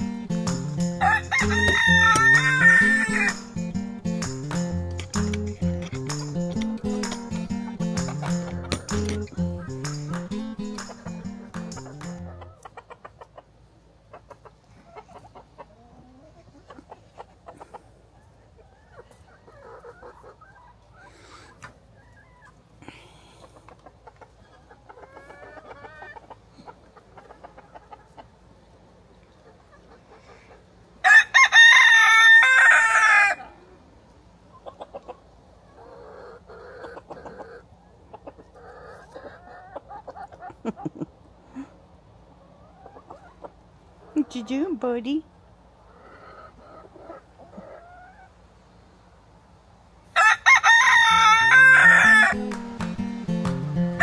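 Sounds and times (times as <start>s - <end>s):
chickens clucking: 0.0s - 31.0s, 32.0s - 49.7s
rooster crowing: 1.0s - 3.4s, 31.0s - 33.5s, 50.2s - 52.4s.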